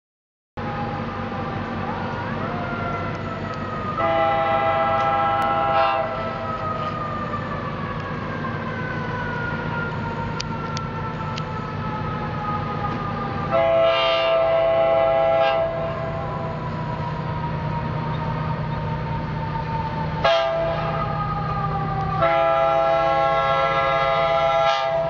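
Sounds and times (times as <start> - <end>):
train rumble: 0.6 - 25.0
train horn blasts: 4.0 - 6.3, 13.5 - 16.1, 20.2 - 21.1, 22.2 - 25.0.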